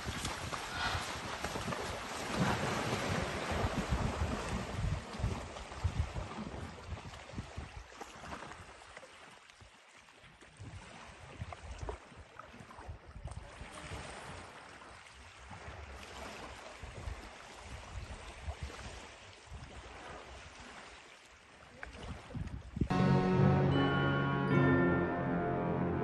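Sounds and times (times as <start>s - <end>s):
wind buffeting microphone: 0.0s - 7.9s
river water lapping: 0.0s - 22.8s.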